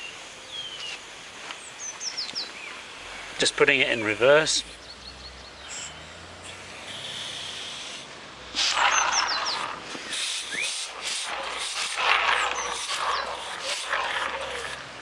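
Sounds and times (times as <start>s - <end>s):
air hissing from model locomotive: 6.6s - 8.8s, 9.7s - 12.0s.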